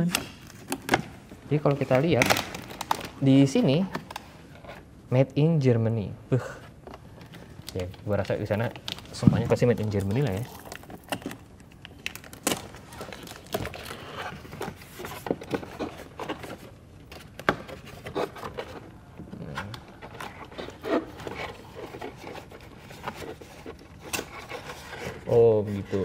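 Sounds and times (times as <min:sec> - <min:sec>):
cardboard rustling and scraping: 0:07.3 - 0:11.4, 0:12.2 - 0:26.0.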